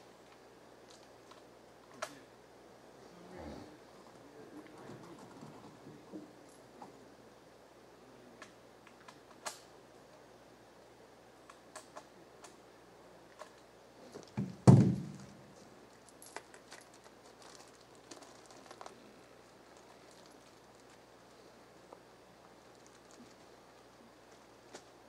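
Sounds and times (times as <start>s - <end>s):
loud thump: 14.4s - 15.4s.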